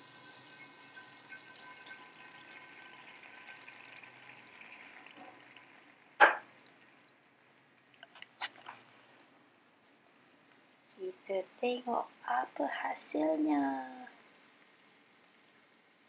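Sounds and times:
batter pouring into hot oil: 0.0s - 16.0s
faint oil sizzling: 0.0s - 16.0s
sharp knock: 6.2s - 6.5s.

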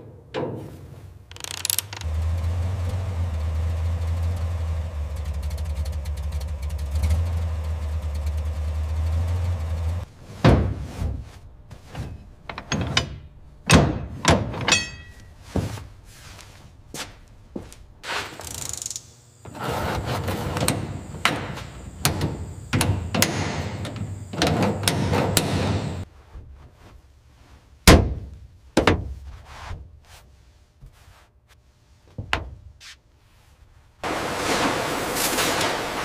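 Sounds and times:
heavy thunk: 10.3s - 11.2s
scraping and rustling: 19.4s - 22.0s.

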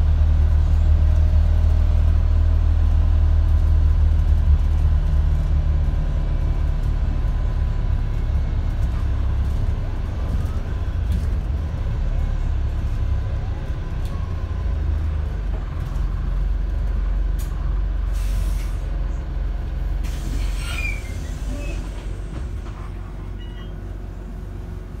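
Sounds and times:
bus engine and road rumble: 0.0s - 25.0s
brake squeal: 20.0s - 23.9s.

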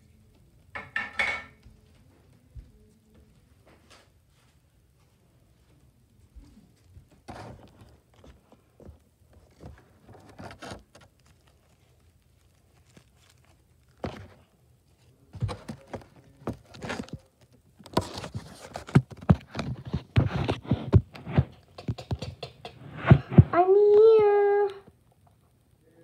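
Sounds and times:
handling taps and thumps: 17.8s - 23.5s.

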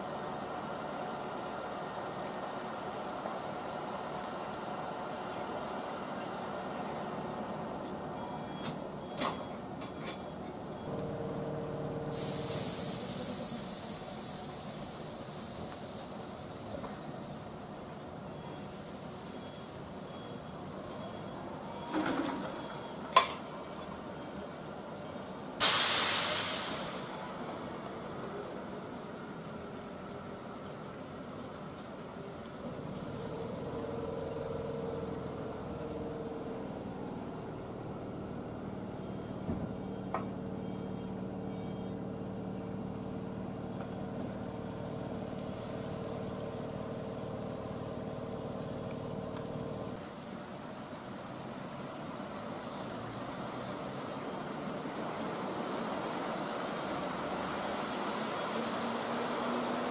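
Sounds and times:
compressed air hiss: 12.1s - 16.4s, 25.6s - 27.1s.

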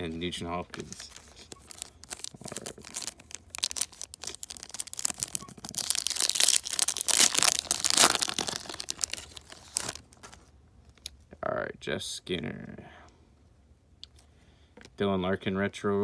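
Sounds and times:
foil wrapper crinkling and tearing: 0.8s - 10.4s.

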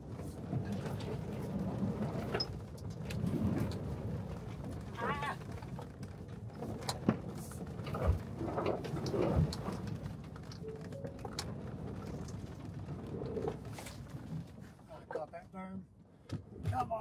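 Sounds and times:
tyres and suspension rumbling: 0.0s - 15.4s.

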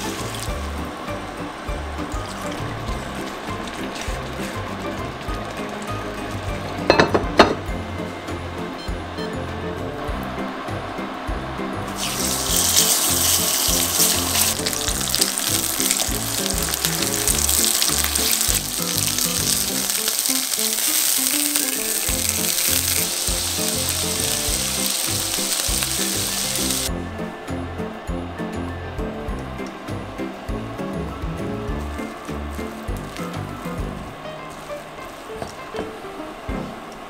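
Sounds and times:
meat sizzling in oil: 0.0s - 0.9s, 2.1s - 7.1s, 11.9s - 26.9s
background music with beat: 0.0s - 37.0s.

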